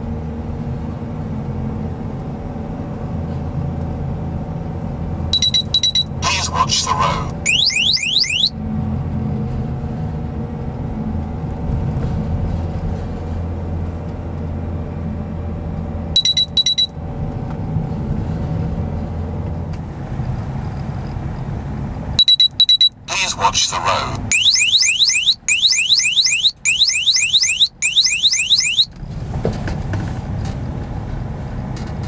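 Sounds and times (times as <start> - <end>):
engine and road drone: 0.0 - 22.2, 22.9 - 32.0
rapid high beeps: 5.4 - 8.5, 22.2 - 28.9
rising electronic chirps: 6.3 - 8.5, 24.3 - 28.9.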